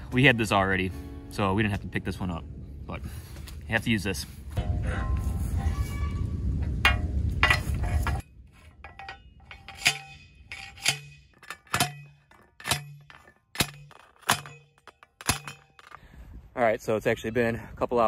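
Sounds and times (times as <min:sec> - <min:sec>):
post driver clanking on steel post: 0:06.8 - 0:16.0.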